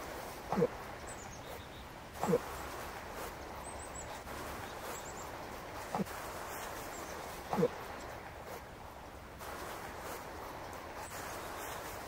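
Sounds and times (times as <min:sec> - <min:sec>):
steady hiss: 0:00.0 - 0:12.0
moose grunting: 0:00.4 - 0:00.9, 0:02.2 - 0:02.6, 0:07.4 - 0:07.9.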